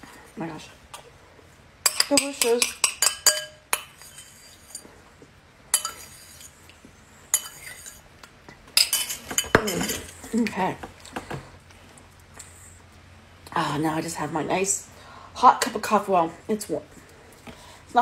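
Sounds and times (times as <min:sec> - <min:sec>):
spoon scraping a bowl: 0:01.9 - 0:05.0, 0:05.7 - 0:06.7, 0:07.3 - 0:08.1.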